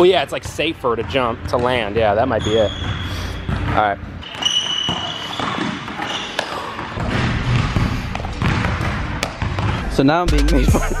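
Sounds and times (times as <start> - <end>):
sneaker squeak: 1.5 - 7.7
sharp thuds of dunk and landing: 6.8 - 9.8.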